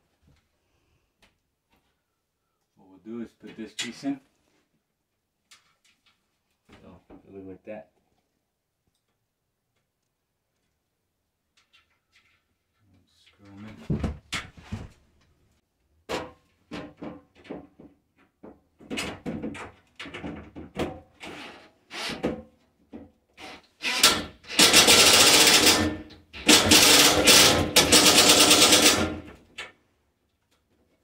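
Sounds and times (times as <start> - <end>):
cordless drill driving screws: 23.4 - 29.2.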